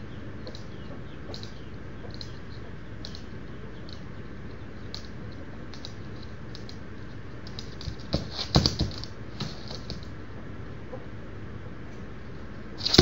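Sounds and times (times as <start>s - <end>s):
rooster toenails clicking on floor: 1.3s - 10.2s, 12.8s - 13.0s
scrabbling thumps of feet: 7.8s - 10.0s, 12.8s - 13.0s.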